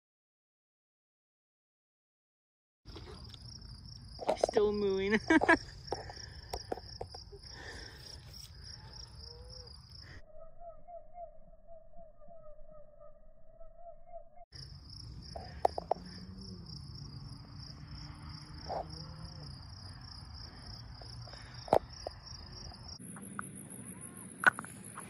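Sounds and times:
night insects chirping: 2.9 - 12.9, 14.1 - 25.0.

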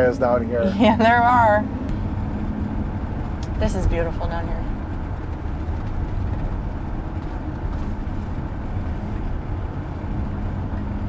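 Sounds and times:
truck engine and road rumble: 0.0 - 11.0.

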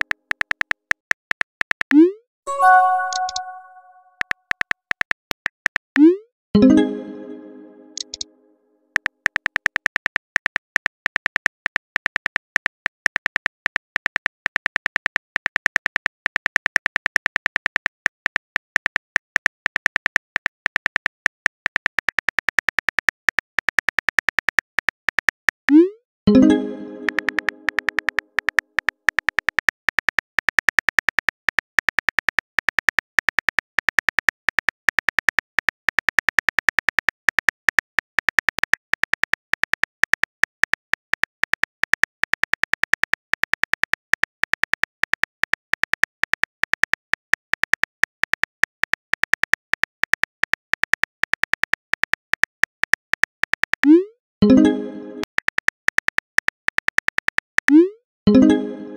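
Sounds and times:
message sent tone: 2.0 - 4.1, 6.6 - 8.2, 26.3 - 28.0, 57.7 - 58.9.

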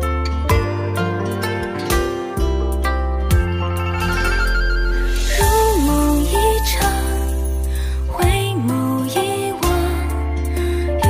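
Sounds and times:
held bass line: 0.0 - 8.7
plucked zither-like melody: 0.0 - 10.7.

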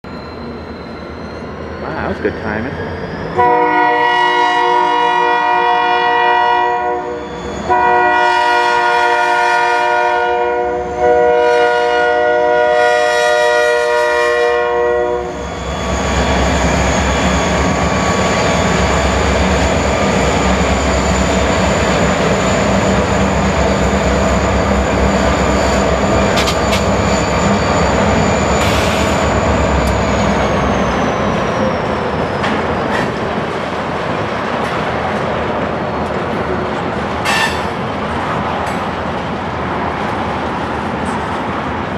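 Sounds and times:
locomotive air horn chord: 3.4 - 15.4
train cars rolling: 15.3 - 41.9.

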